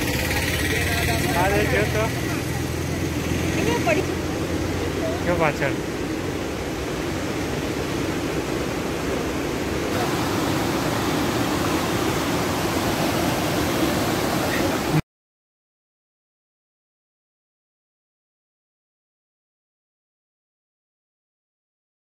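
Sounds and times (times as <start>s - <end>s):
waterfall rushing over rocks: 0.0s - 15.0s.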